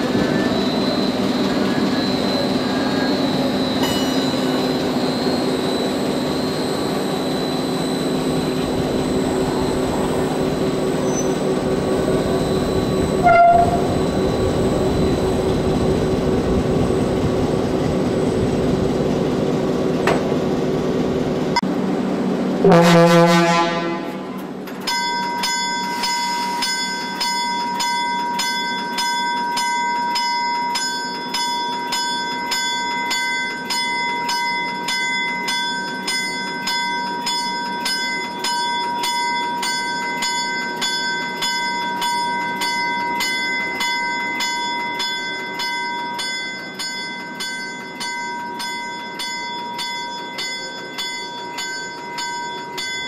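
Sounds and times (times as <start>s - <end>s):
locomotive bell ringing: 0.0s - 21.6s, 22.7s - 53.0s
locomotive engine running: 0.0s - 28.2s
locomotive horn: 13.2s - 14.0s, 22.6s - 24.5s.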